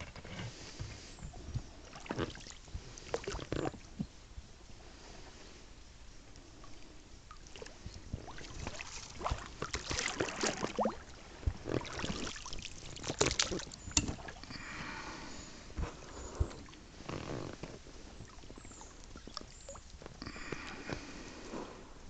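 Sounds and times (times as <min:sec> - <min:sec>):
wooden boat creaking: 0:00.0 - 0:04.1, 0:08.2 - 0:21.3
wooden boat knocks and clicks: 0:13.0 - 0:14.4.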